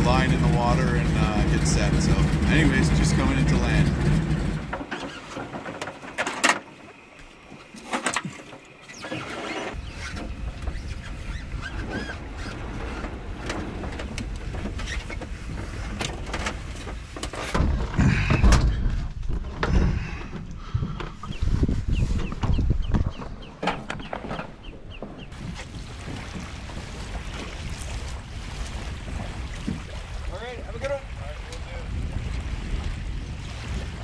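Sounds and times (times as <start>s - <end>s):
plane engine and rushing air: 0.0s - 4.9s.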